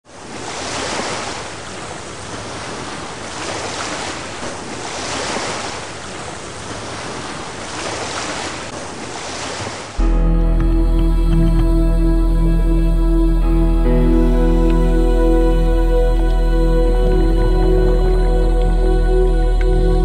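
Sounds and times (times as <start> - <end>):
ocean waves washing: 0.1 - 20.0
soft sustained music: 10.0 - 20.0.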